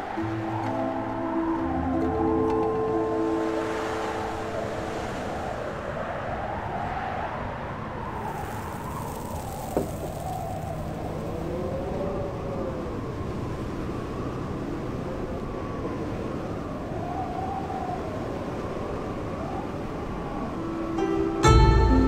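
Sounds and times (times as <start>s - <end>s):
wind howling: 0.0s - 21.5s
plucked-string music: 0.2s - 4.8s, 21.0s - 22.0s.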